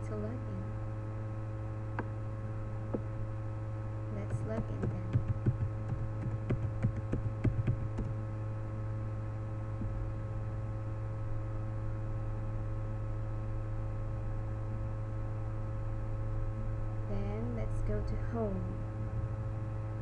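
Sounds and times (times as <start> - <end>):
steady electrical hum: 0.0 - 20.0
keyboard typing: 4.3 - 8.1.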